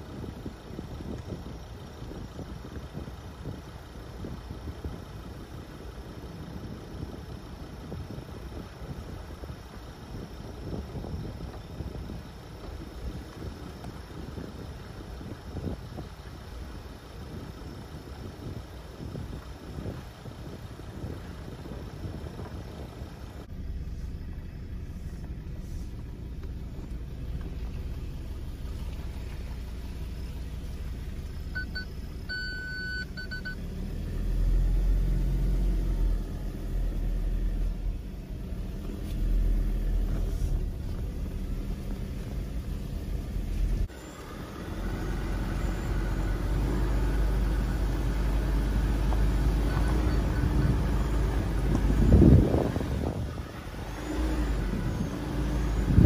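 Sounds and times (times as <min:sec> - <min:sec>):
car engine and tyre rumble: 0:00.0 - 0:56.0
wind on microphone: 0:49.1 - 0:56.0.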